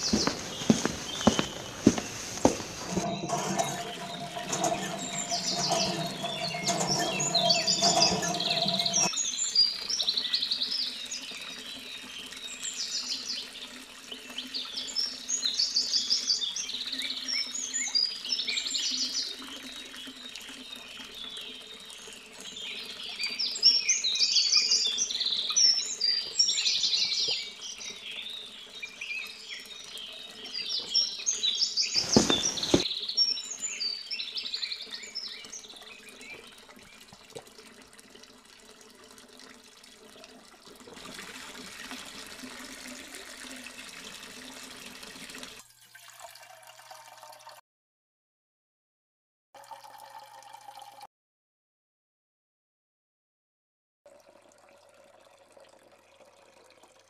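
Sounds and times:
small birds chirping: 0.0s - 37.2s.

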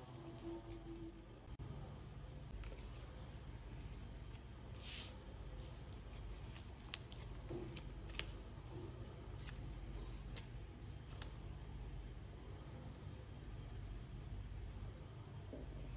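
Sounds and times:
faint low hum: 0.0s - 15.9s
paper rustle: 2.6s - 8.4s, 9.3s - 11.7s
paper crackling and tapping: 5.6s - 8.5s, 9.3s - 11.6s.

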